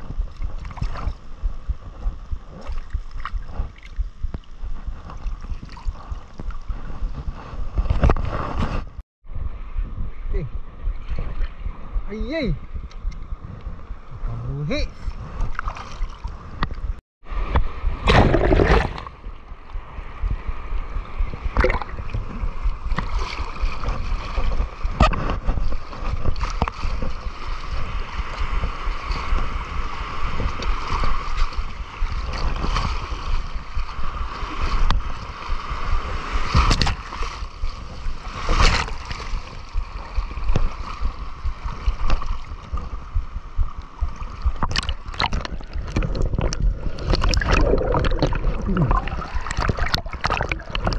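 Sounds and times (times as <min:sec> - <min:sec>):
seawater sloshing and splashing: 0:15.4 - 0:16.6, 0:21.2 - 0:43.1, 0:44.2 - 0:50.9.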